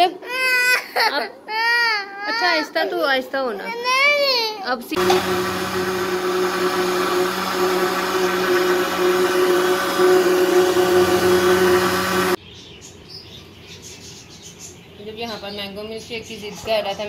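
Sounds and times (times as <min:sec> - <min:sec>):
blender motor running: 0:05.0 - 0:12.4.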